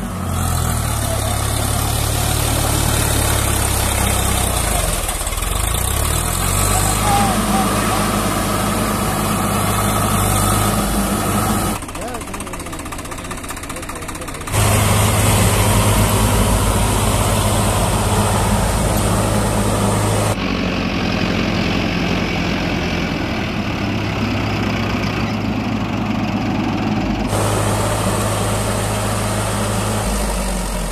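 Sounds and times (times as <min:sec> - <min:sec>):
tractor diesel engine running: 0:00.0 - 0:30.9.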